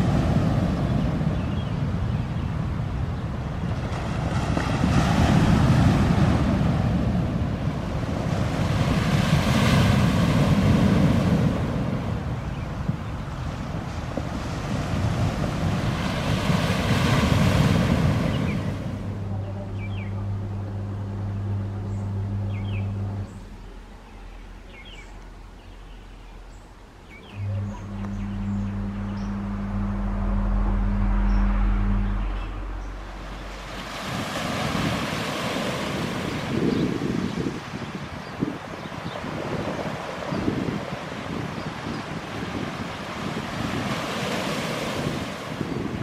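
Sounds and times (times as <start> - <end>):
surf washing on shore: 0.0 - 25.8, 26.5 - 46.0
low steady hum: 0.0 - 37.8
outdoor ambience: 0.0 - 45.9
wind buffeting microphone: 0.0 - 46.0
bird chirping: 0.9 - 2.6, 18.2 - 34.5.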